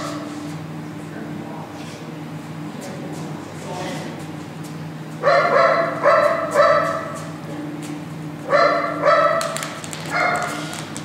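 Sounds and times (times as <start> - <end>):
dog barking: 5.2 - 7.2, 8.5 - 10.7.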